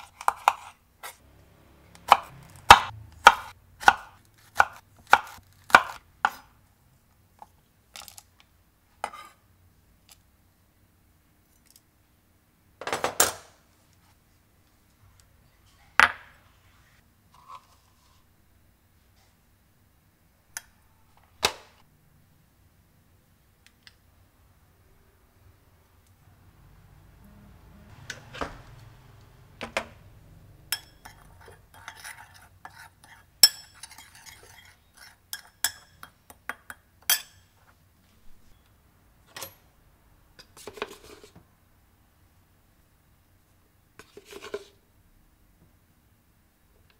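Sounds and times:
spoon clinking ceramic bowl: 0:30.7 - 0:32.8, 0:33.4 - 0:37.5.

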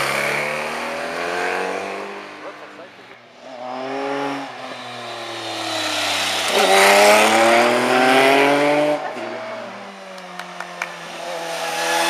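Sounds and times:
motorcycle engine accelerating past: 0:03.5 - 0:10.0.

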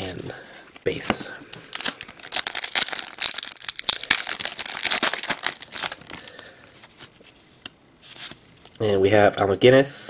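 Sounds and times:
wrapper being torn and crinkled: 0:01.6 - 0:06.4.

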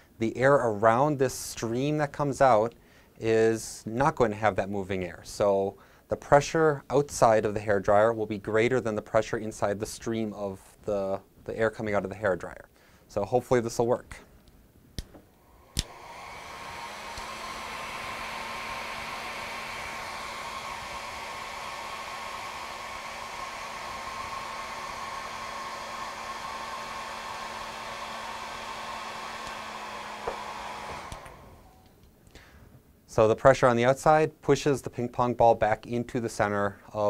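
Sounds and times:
hair dryer running: 0:15.4 - 0:31.9
hair dryer switch click: 0:15.7 - 0:17.6, 0:29.3 - 0:31.5.

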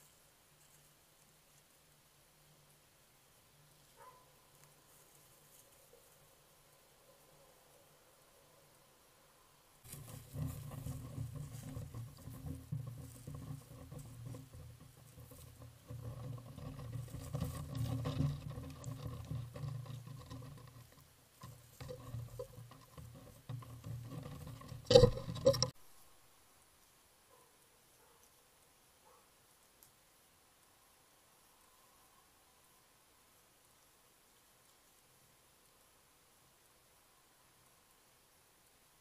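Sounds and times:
rustling and scratching in grass: 0:00.0 - 0:08.8, 0:09.8 - 0:25.7
small clicks: 0:10.0 - 0:25.8.

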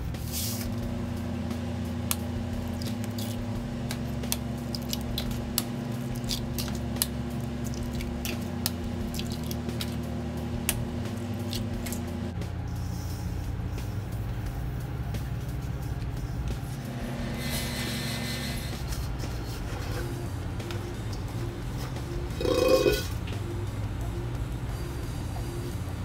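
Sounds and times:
eggs squishing into bowl: 0:02.6 - 0:10.0
eggshells cracking: 0:02.7 - 0:03.4, 0:04.2 - 0:10.0.

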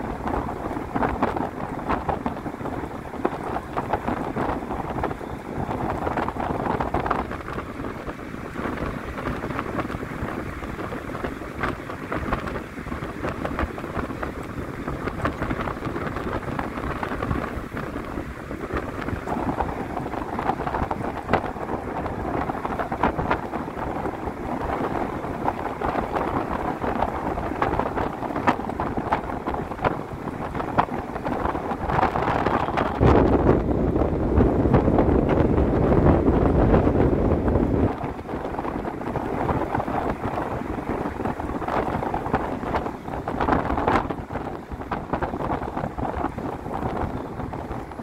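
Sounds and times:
bus engine and road rush: 0:00.0 - 0:48.0.

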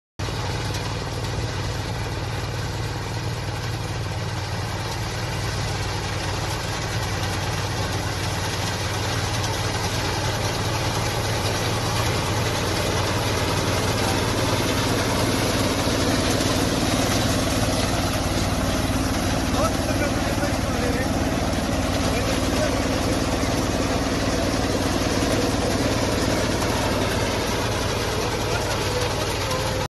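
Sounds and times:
combine harvester running: 0:00.2 - 0:29.9.

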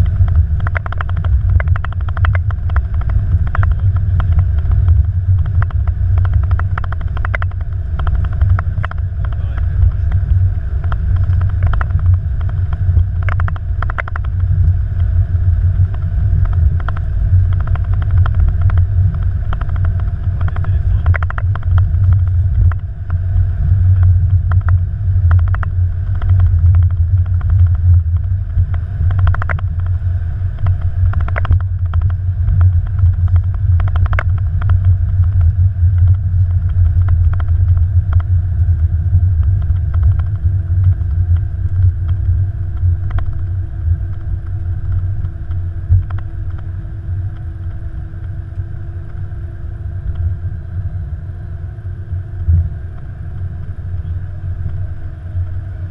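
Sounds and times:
knocks and rattles: 0:00.0 - 0:10.2, 0:10.8 - 0:14.4, 0:19.5 - 0:22.8
cockpit rumble on runway: 0:00.0 - 0:55.9
steady hum: 0:00.0 - 0:55.9.

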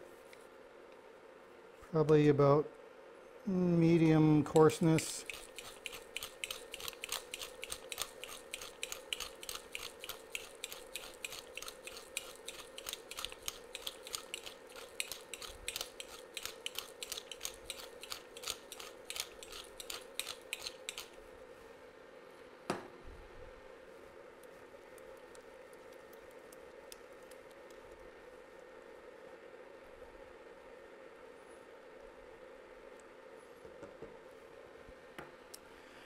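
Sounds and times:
pepper mill grinding: 0:04.5 - 0:21.2.

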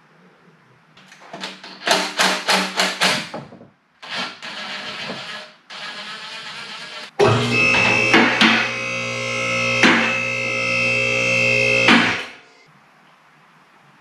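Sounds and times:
rubbing noise: 0:04.0 - 0:07.1.

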